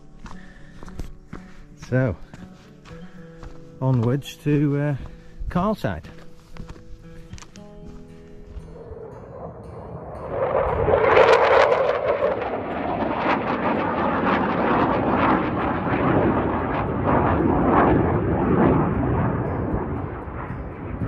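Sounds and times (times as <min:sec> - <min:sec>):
jet engine roar: 0:08.6 - 0:21.0.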